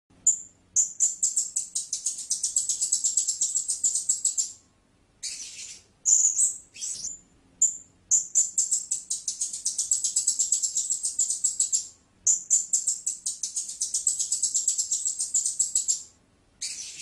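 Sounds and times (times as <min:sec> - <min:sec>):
parrot high thin chirps: 0:05.2 - 0:17.0.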